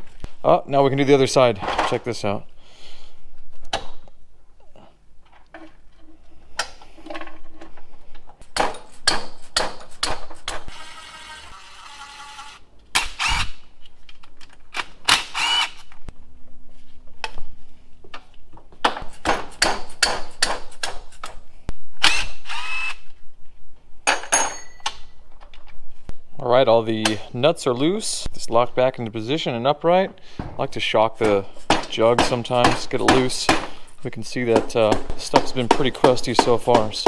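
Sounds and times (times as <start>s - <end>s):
wrench clinking on metal: 24.1s - 25.1s.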